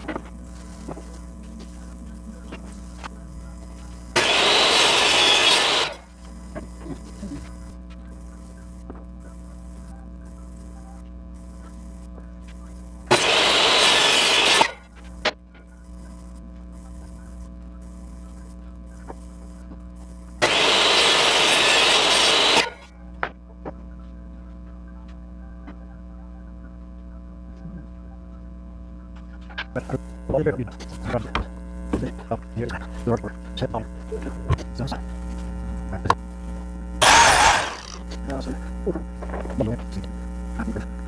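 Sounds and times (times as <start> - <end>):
steady hum: 0.0 - 41.0
table saw cutting wood: 4.2 - 6.1, 13.1 - 14.8, 20.4 - 22.9, 37.0 - 38.1.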